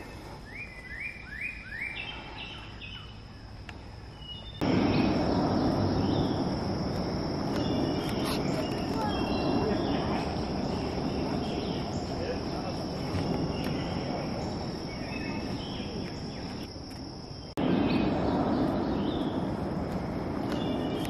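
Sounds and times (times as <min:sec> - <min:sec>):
faint bird chirps: 0:00.0 - 0:06.6, 0:07.5 - 0:16.7
insects trilling: 0:00.0 - 0:21.0.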